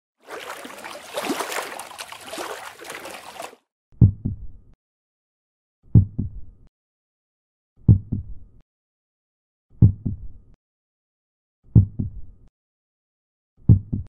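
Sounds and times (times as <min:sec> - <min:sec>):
low heartbeat thumps: 0:04.0 - 0:04.5, 0:05.9 - 0:06.4, 0:07.9 - 0:08.4, 0:09.8 - 0:10.4, 0:11.8 - 0:12.3, 0:13.7 - 0:14.0.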